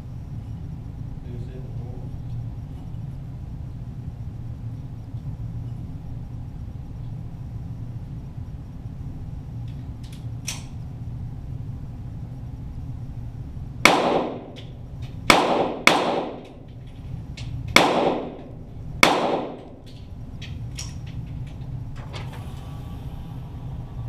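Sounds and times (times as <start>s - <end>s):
steady low hum: 0.0s - 24.0s
pistol shots cracking: 13.8s - 16.7s, 17.7s - 19.8s.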